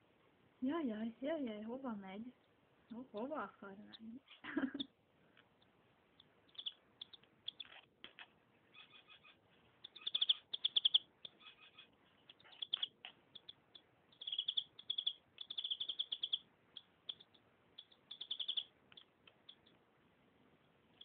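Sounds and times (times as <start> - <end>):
canary singing: 1.5 - 21.0.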